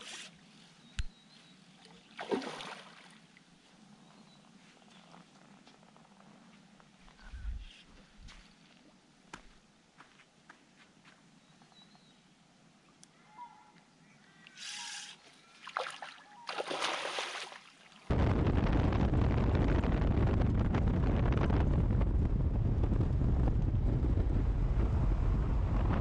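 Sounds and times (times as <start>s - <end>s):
wind buffeting microphone: 7.2s - 8.4s, 18.1s - 26.0s.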